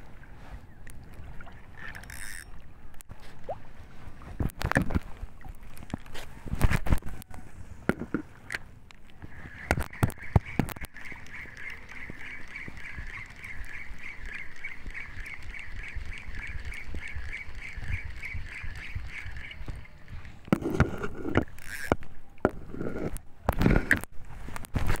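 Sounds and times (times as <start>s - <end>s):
fishing reel squeaky whir: 1.7s - 2.6s, 9.3s - 22.0s.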